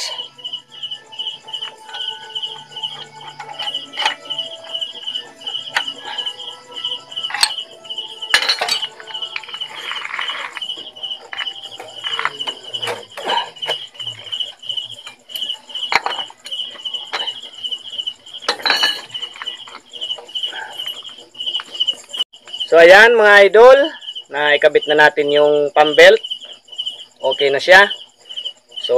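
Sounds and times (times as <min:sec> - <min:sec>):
insect chirping: 0:00.0 - 0:28.9
metal tool clinking and scraping: 0:01.7 - 0:04.8, 0:05.5 - 0:14.2, 0:14.8 - 0:17.5, 0:18.4 - 0:19.8.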